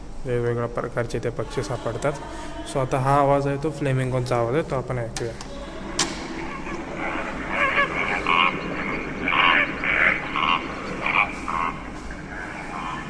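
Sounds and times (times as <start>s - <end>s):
recorded flamingo calls: 5.5s - 13.0s.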